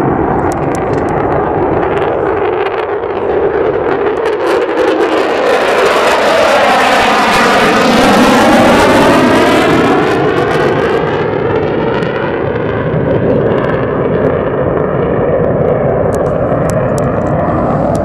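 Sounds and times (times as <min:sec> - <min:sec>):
jet engine roar: 0:00.0 - 0:18.0.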